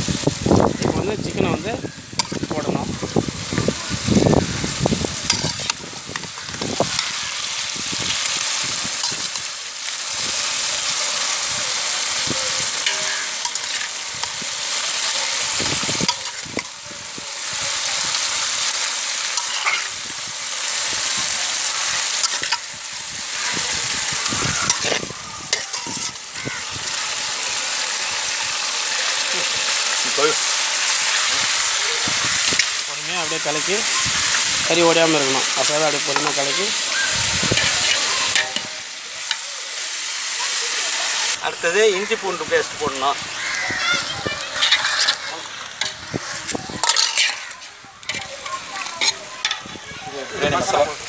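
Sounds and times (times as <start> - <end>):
chicken sizzling in hot oil: 0.0 - 51.0
metal ladle scraping pot: 2.2 - 2.6, 5.2 - 7.4, 12.0 - 16.8, 18.3 - 20.0, 22.0 - 22.8, 24.0 - 26.4, 35.2 - 39.4, 44.5 - 49.8.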